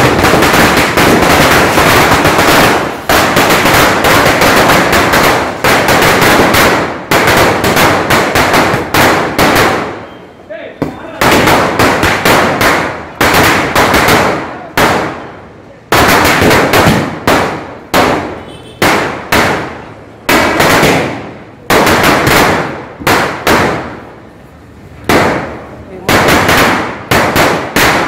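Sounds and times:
firecracker chain bursting: 0.0s - 24.4s, 25.1s - 28.0s.

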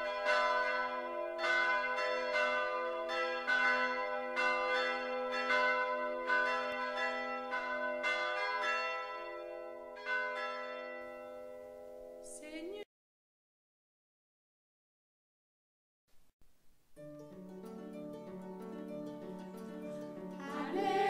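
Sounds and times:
church bells ringing a peal: 0.0s - 12.3s.

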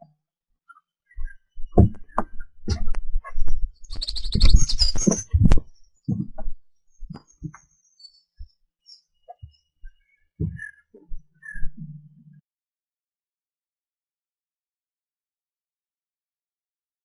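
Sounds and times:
bird trilling: 3.8s - 5.5s.

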